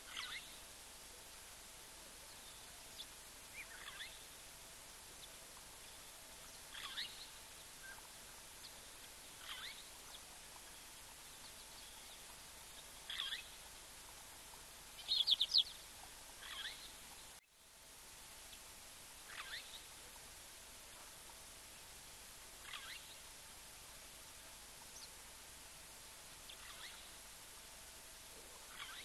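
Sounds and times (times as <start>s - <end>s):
faint outdoor hiss: 0.0s - 29.0s
bird chirping call: 0.1s - 0.6s, 3.5s - 4.2s, 6.7s - 8.0s, 9.4s - 10.2s, 13.1s - 13.6s, 15.0s - 15.8s, 16.4s - 17.0s, 19.3s - 19.8s, 22.6s - 23.2s, 26.5s - 27.1s, 28.7s - 29.0s.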